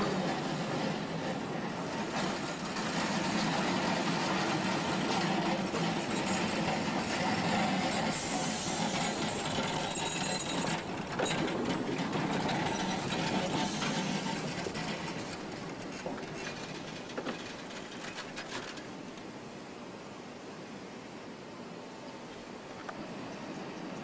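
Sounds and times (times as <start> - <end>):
streetcar wheels rumbling on rails: 0.0 - 20.0
hiss: 5.8 - 10.8, 13.1 - 15.4.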